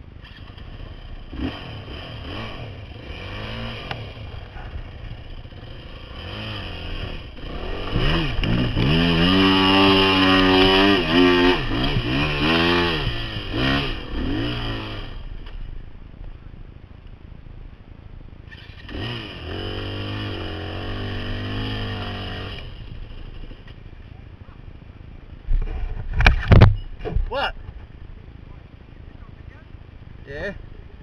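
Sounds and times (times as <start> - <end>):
dirt bike engine revving: 0.2 - 15.7, 18.5 - 23.7.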